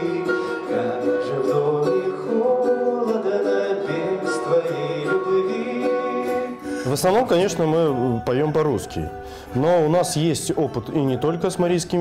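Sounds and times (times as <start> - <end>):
men singing in harmony: 0.0 - 8.2
plucked string instrument: 0.0 - 12.0.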